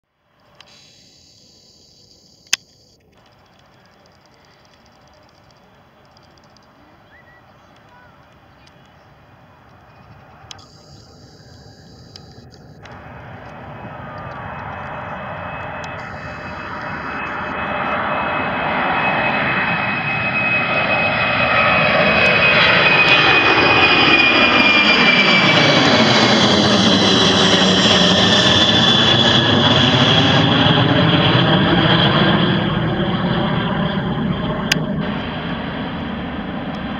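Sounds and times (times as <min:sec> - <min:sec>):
jet engines passing overhead: 0:00.2 - 0:36.9
high jet whine dropping in pitch: 0:09.2 - 0:36.9.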